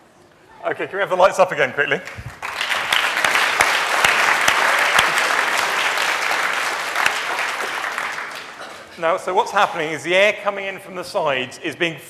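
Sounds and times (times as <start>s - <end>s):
audience clapping: 1.8s - 9.0s.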